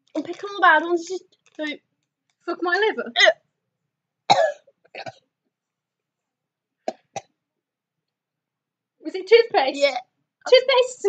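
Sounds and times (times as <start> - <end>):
woman coughing: 4.3 - 5.2.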